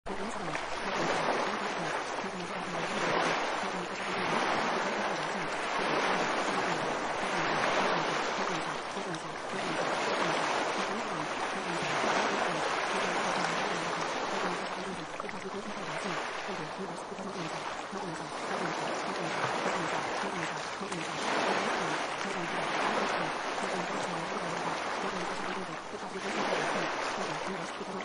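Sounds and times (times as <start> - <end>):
faint muffled voice: 0.1 - 28.0
rushing water like surf: 0.1 - 28.0.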